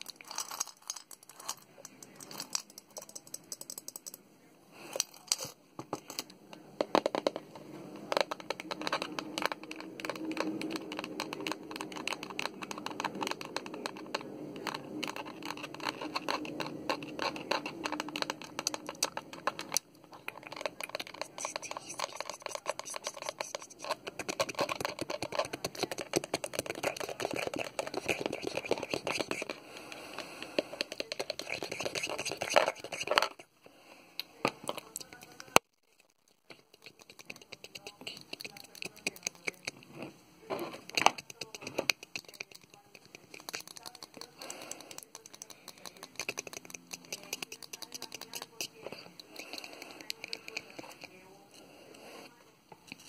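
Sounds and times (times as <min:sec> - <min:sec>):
fingernails tapping on a can: 0:08.1 - 0:29.6, 0:30.5 - 0:33.4, 0:40.9 - 0:51.0
fingernails tapping on plastic bottle: 0:08.1 - 0:29.6.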